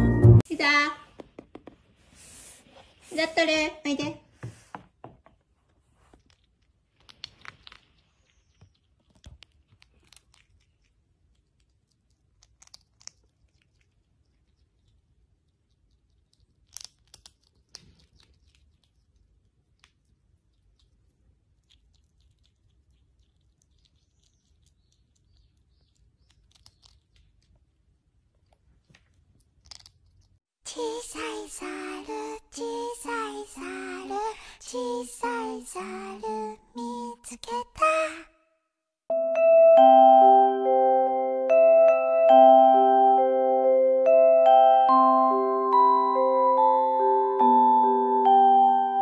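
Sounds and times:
small animal chewing and crunching: 5.8 - 30.4
bushbaby nibbling food clicks: 6.2 - 30.4.

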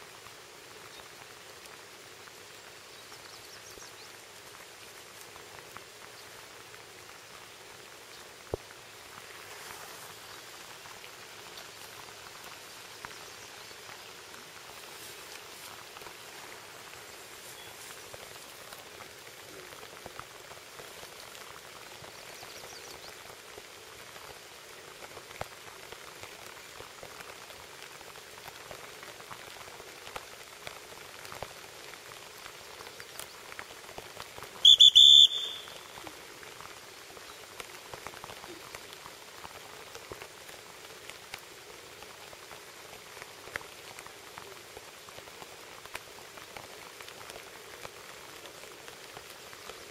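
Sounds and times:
rain falling on water: 0.0 - 49.9
dog whistle blast: 34.6 - 35.8.

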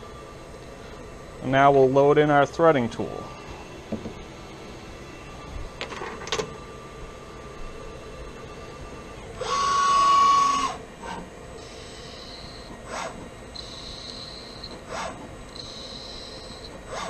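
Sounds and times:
lathe motor high whine: 6.6 - 17.0.

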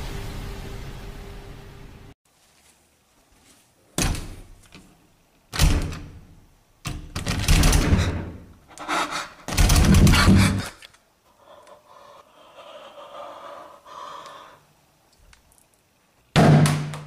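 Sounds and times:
door rattling against frame: 5.6 - 6.2, 6.9 - 8.4, 9.5 - 10.6.

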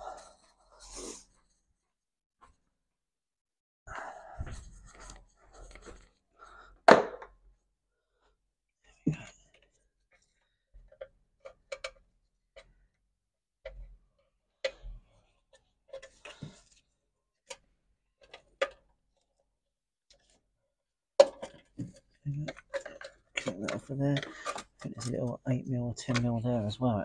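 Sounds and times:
hand tools clicking on plastic: 21.2 - 25.3.

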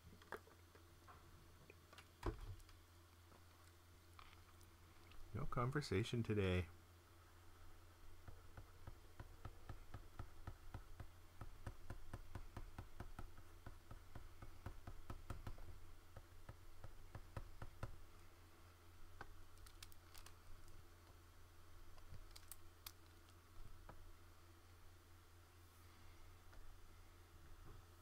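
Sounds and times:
low steady hum: 0.0 - 28.0
computer clicking and tapping: 8.2 - 18.0.

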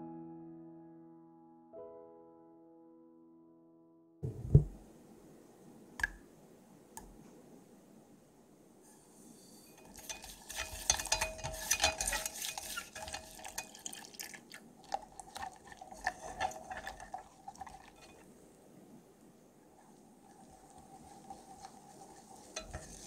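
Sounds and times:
whisk clinking against saucepan: 9.6 - 18.2, 20.6 - 23.0.

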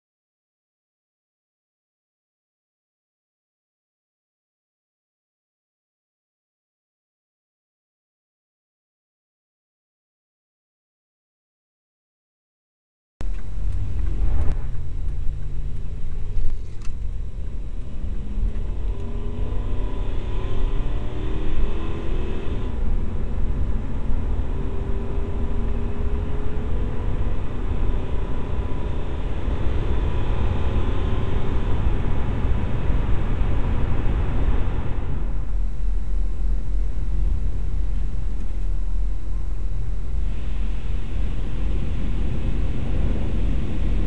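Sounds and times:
road noise: 13.2 - 44.0
truck engine rumble: 13.2 - 44.0.

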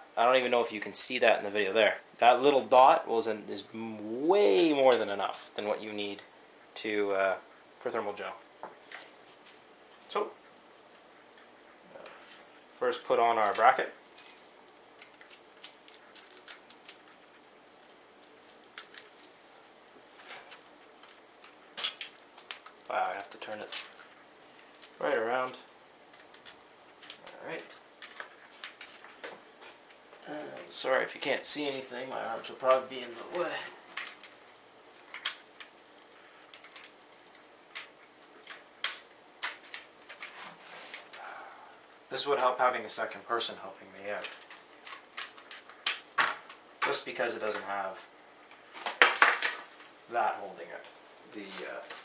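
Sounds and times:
plastic parts clicking and tapping: 13.4 - 17.2, 20.3 - 29.8, 35.0 - 35.7, 36.4 - 40.3, 44.2 - 47.6.

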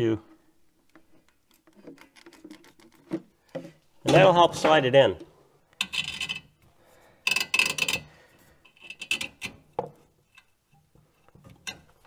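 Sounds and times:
metal scrapes and clicks: 5.7 - 6.6, 7.2 - 12.0.

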